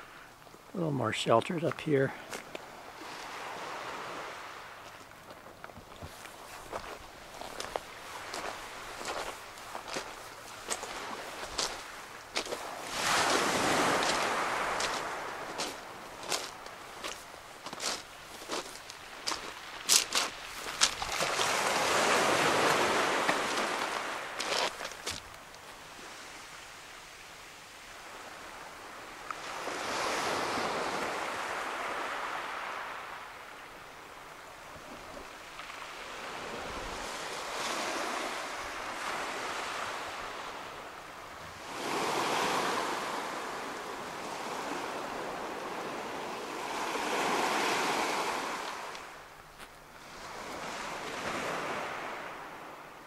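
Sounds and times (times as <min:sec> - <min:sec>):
waves washing up pebble beach: 0:01.9 - 0:05.0, 0:06.1 - 0:25.2, 0:27.9 - 0:33.4, 0:35.0 - 0:40.8, 0:41.5 - 0:49.2, 0:50.0 - 0:52.6.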